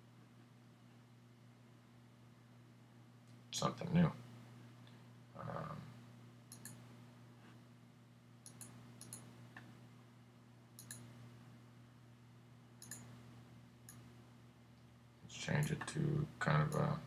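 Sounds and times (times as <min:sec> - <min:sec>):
low steady hum: 0:00.0 - 0:17.0
computer mouse clicks: 0:06.5 - 0:06.8, 0:08.4 - 0:09.7, 0:10.8 - 0:11.1, 0:12.8 - 0:13.1.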